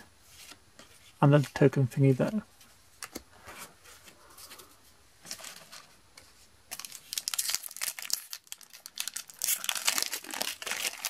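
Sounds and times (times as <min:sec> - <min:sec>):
foil wrapper crinkling: 0:06.7 - 0:11.0.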